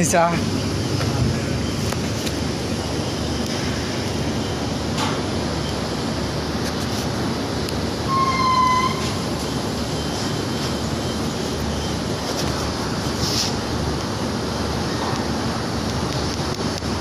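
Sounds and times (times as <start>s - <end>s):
short horn toot: 8.1s - 9.2s.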